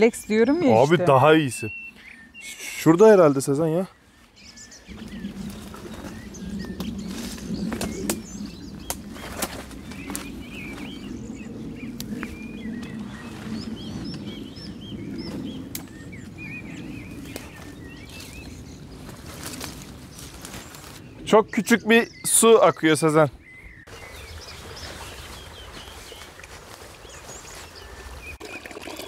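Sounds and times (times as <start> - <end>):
small birds chirping: 0.0 - 29.0
branches rustling: 3.2 - 21.3, 23.8 - 28.4
twigs snapping: 6.8 - 10.9, 15.7 - 16.0.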